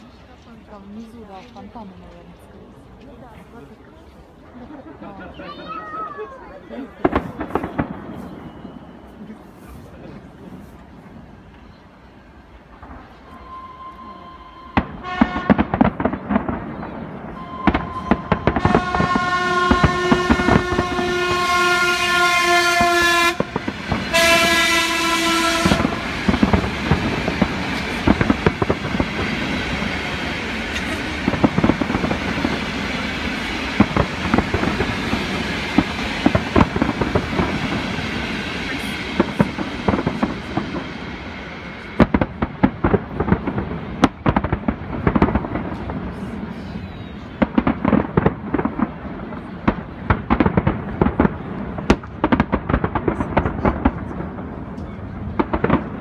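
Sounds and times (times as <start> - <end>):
fireworks bangs and crackle: 0.0 - 56.0
fireworks booms: 5.5 - 11.8, 14.6 - 56.0
horn blasts: 13.2 - 15.7, 17.4 - 26.8.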